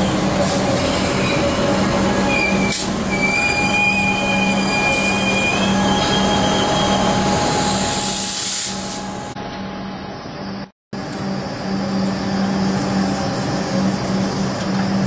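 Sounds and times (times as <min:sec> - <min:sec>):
electric train hum and rumble: 0:00.0 - 0:15.0
high-pitched metallic squeal: 0:00.5 - 0:09.2.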